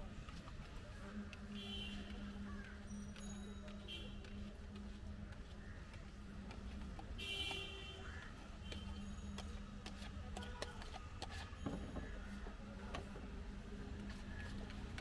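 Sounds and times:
plastic tubs and spoon on counter: 3.6s - 15.0s.

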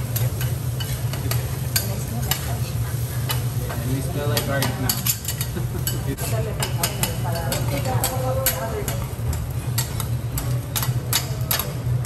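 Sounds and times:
rice sizzling: 0.0s - 12.0s.

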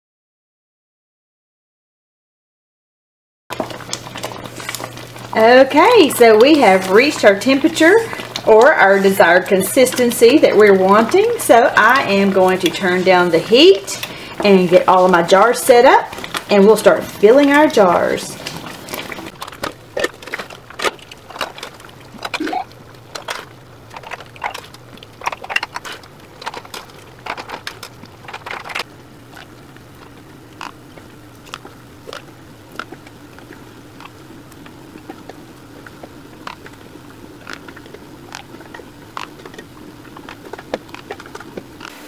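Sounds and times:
faint steady hum: 3.5s - 42.0s.

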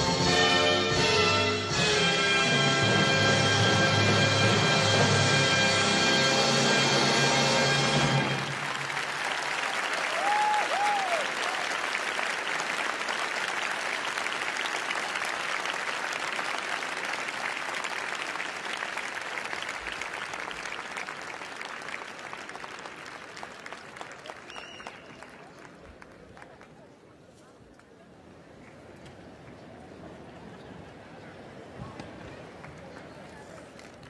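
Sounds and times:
crowd applauding: 7.8s - 27.0s.

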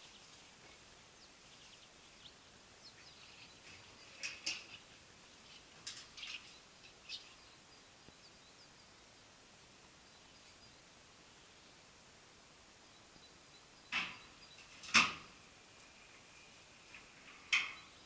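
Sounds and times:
faint bird chirps: 0.0s - 9.3s, 9.9s - 11.8s, 12.8s - 14.8s, 17.5s - 18.0s
background hiss: 0.0s - 18.0s.

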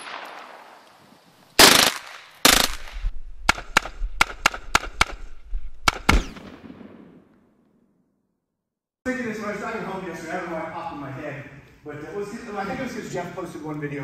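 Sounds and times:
gunshots: 1.6s - 7.6s.

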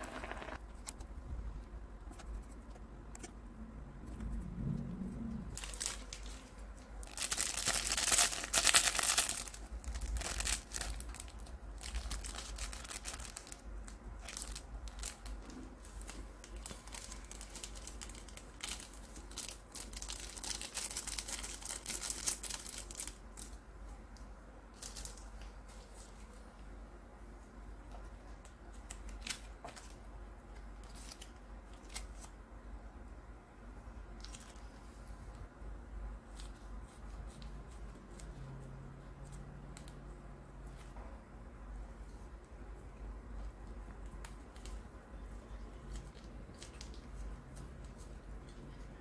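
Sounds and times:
plastic sachets crinkling: 5.6s - 23.6s.

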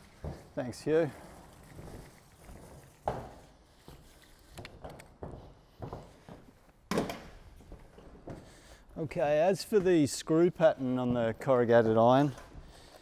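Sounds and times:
footsteps on metal roof: 1.8s - 8.8s.

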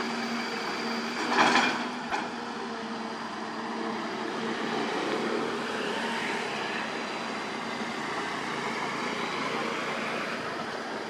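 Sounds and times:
diesel engines running: 0.0s - 11.0s
loud rush of noise: 3.0s - 11.0s.

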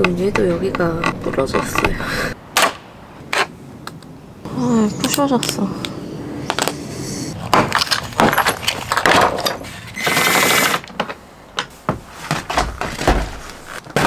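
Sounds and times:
harsh plastic scraping: 0.0s - 2.1s.

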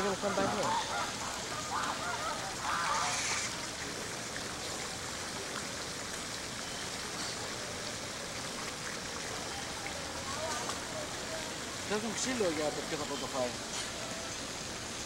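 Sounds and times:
steady rushing hiss: 1.0s - 4.6s.

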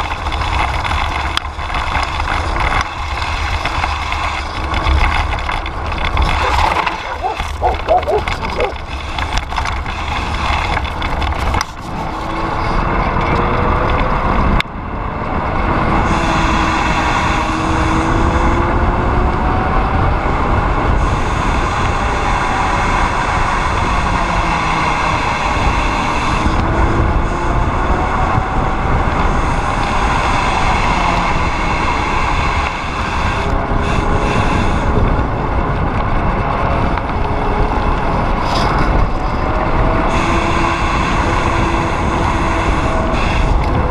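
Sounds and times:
tyres rolling on gravel: 0.0s - 14.0s
wind over microphone: 0.0s - 43.9s.

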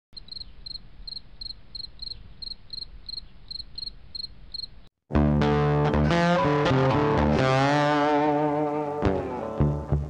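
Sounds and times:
insect chirping: 0.2s - 4.9s
electric guitar music: 5.1s - 10.0s.

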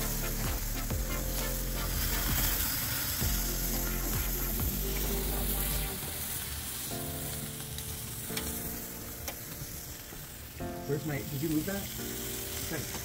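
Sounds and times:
meat sizzling on grill: 0.0s - 13.0s.

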